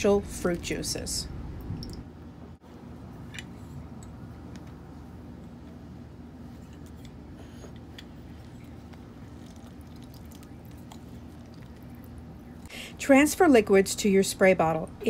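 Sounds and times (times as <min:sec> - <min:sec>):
low hum: 0:00.0 - 0:15.0
juice dripping: 0:01.6 - 0:02.1, 0:08.0 - 0:12.8.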